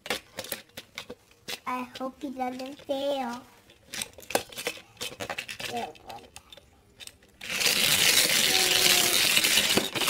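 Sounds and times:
toy engine clattering down track: 7.4s - 10.0s.

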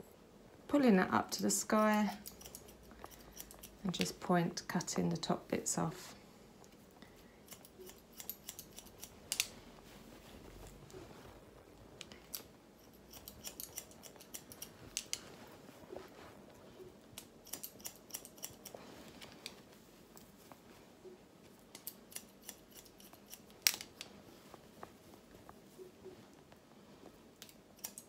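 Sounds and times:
scissors snipping hair: 1.6s - 4.2s, 7.4s - 9.6s, 12.0s - 15.3s, 17.2s - 19.6s, 21.6s - 24.1s, 27.4s - 28.0s.

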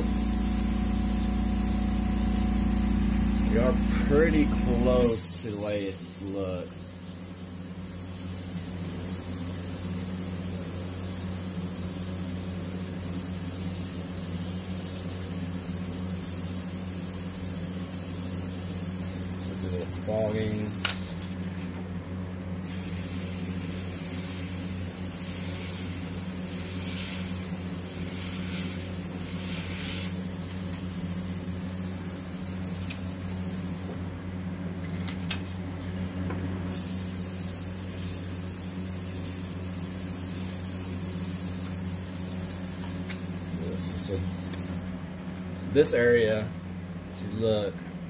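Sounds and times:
low hum: 0.0s - 7.4s
airbrush hissing: 0.0s - 21.1s, 22.6s - 34.0s, 36.7s - 44.9s.

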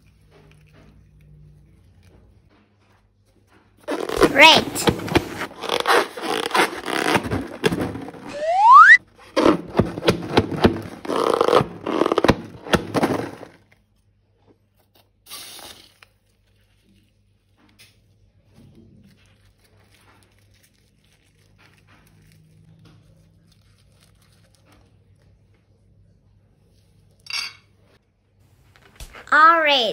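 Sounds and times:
balloon and slime rubbing and crackling: 3.8s - 13.7s.

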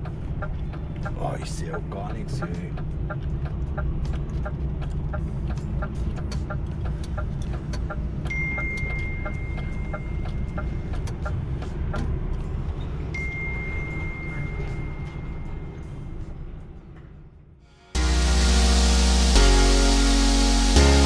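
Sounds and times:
regular ticking: 0.0s - 14.0s, 18.0s - 21.0s
steady high-pitched beep: 7.9s - 10.9s, 13.2s - 15.6s.

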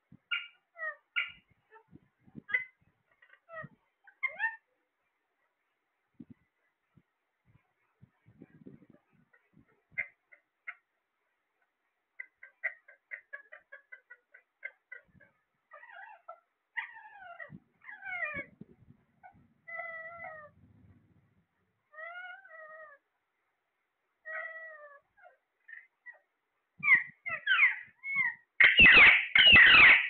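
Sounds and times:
parakeets calling: 26.8s - 30.0s
parakeets screeching harshly: 28.6s - 30.0s.

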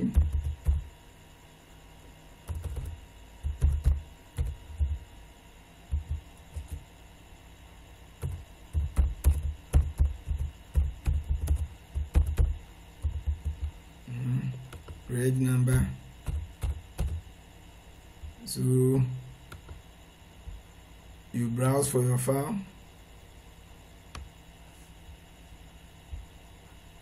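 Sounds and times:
typing on computer keyboard: 2.5s - 4.6s, 8.2s - 12.5s, 16.2s - 17.2s.

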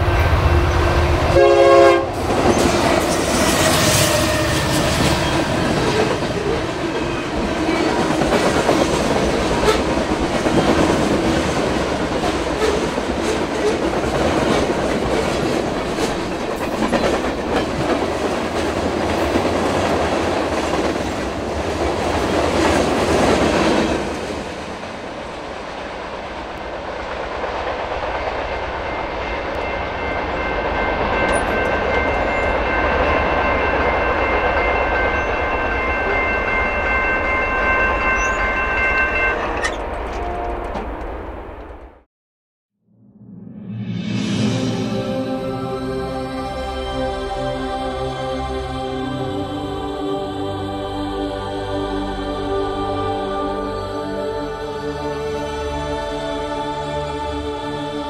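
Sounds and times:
locomotive horn: 0.0s - 5.6s
train wheels clacking over rails: 2.2s - 24.5s
crossing bell ringing: 28.7s - 40.8s.

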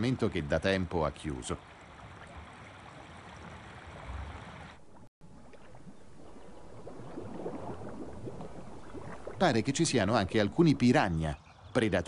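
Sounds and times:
stream water rushing: 0.0s - 4.8s
water trickling and dripping: 0.0s - 11.9s.

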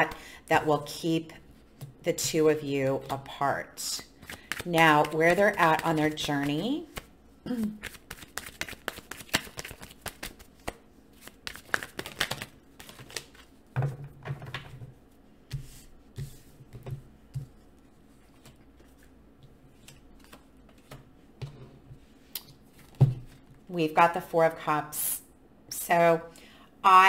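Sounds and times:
cards flicking and tapping: 4.2s - 7.1s, 7.8s - 13.4s.

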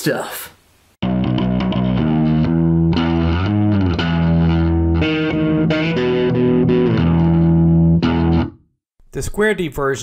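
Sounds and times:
bass line: 1.0s - 8.6s
distorted electric guitar chords: 1.0s - 8.7s.

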